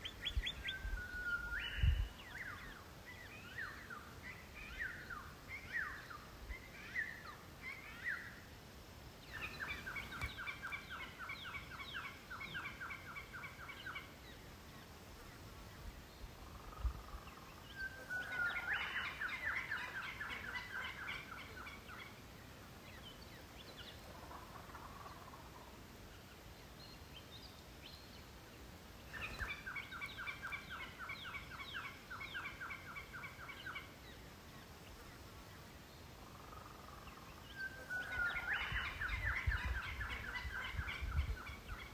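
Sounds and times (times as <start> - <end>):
wild birds calling: 9.2 - 27.2, 28.8 - 41.9.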